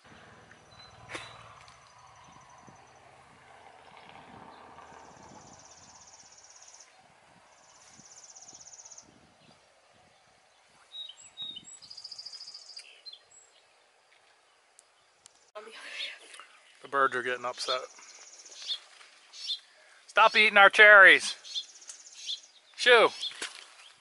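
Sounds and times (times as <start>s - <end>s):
sharp bird chirps: 17.7s - 20.4s, 21.4s - 23.4s.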